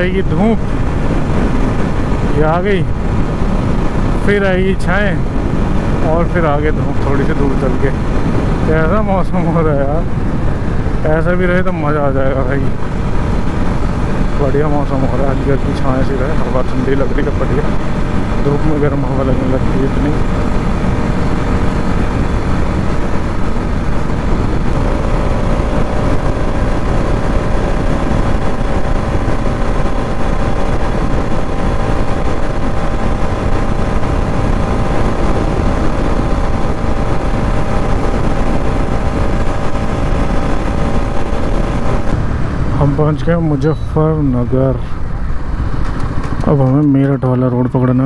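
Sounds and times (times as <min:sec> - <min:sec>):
wind rushing: 0:00.0 - 0:46.6
motorcycle engine drone: 0:00.0 - 0:48.0.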